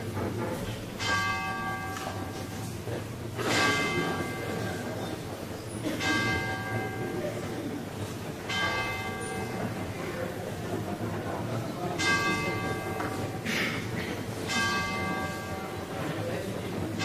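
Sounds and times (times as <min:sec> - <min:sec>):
bell ringing: 0:08.5 - 0:09.8, 0:12.0 - 0:13.5, 0:14.5 - 0:15.9.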